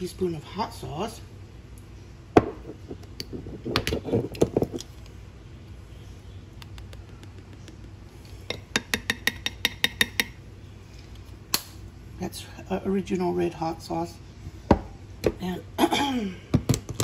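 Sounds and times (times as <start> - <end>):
spoon tapping ceramic bowl: 8.5 - 10.4.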